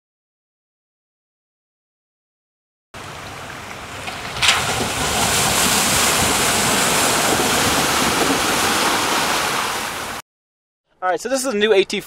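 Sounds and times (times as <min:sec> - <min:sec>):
flowing stream hiss: 0:03.0 - 0:10.2
tyres splashing through water: 0:03.0 - 0:10.2.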